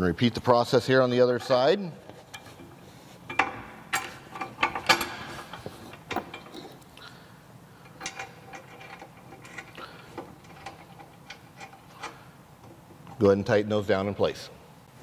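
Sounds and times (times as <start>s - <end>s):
metal hardware clicking and clinking: 1.4s - 7.0s, 7.8s - 13.3s.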